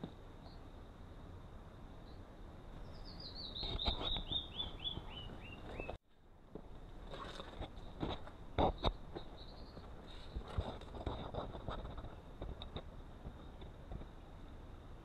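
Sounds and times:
wren singing descending whistles: 0:02.8 - 0:06.0.

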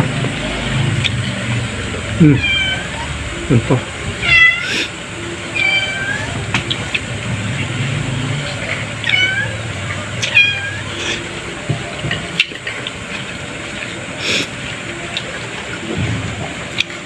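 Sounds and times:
cat meowing: 0:02.2 - 0:03.2, 0:04.2 - 0:04.8, 0:05.5 - 0:06.4, 0:09.0 - 0:11.0.

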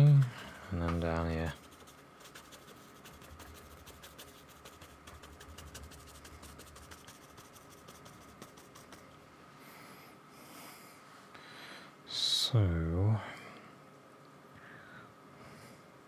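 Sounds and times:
paintbrush dabbing on paper: 0:01.3 - 0:09.1.

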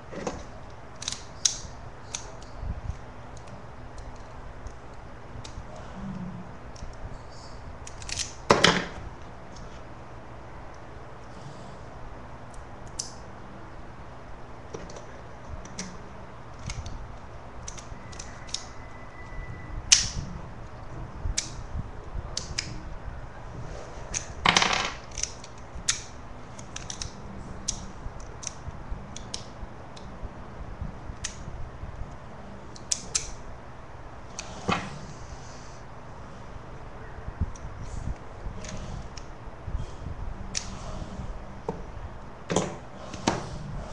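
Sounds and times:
small metal parts clicking: 0:00.3 - 0:04.8, 0:07.8 - 0:08.4, 0:17.6 - 0:18.8, 0:24.1 - 0:29.4.

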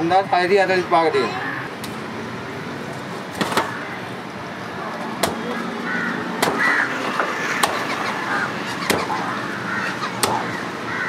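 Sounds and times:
crows cawing: 0:03.6 - 0:04.0, 0:05.4 - 0:11.0
machete chopping fish on wood: 0:05.2 - 0:05.4, 0:06.4 - 0:07.8, 0:08.9 - 0:09.1, 0:10.2 - 0:10.5.

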